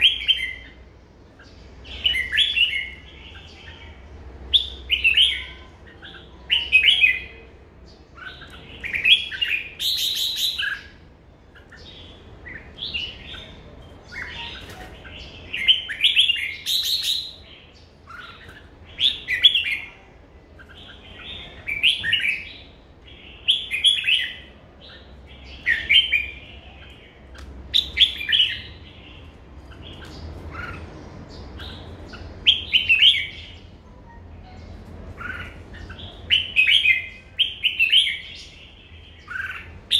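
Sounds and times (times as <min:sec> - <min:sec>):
bird singing: 0:00.0 - 0:39.9.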